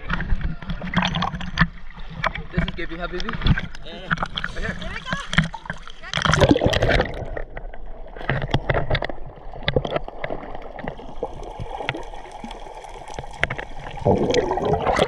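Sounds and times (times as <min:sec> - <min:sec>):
muffled underwater wash: 0:00.0 - 0:15.0
underwater clicks and crackles: 0:00.0 - 0:15.0
loud splash: 0:04.4 - 0:07.3.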